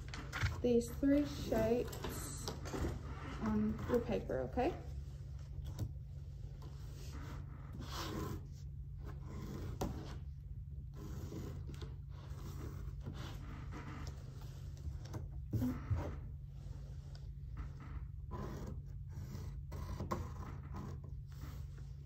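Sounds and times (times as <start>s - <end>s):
low room hum: 0.0s - 22.0s
pencil scratching on paper: 6.9s - 10.2s, 10.9s - 13.9s, 18.3s - 21.8s.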